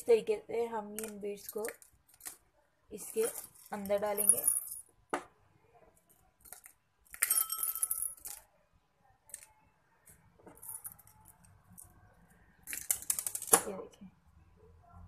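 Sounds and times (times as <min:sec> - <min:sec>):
beads rattling in glass jar: 0:03.0 - 0:04.9, 0:06.4 - 0:08.5, 0:10.5 - 0:12.0, 0:12.6 - 0:13.6.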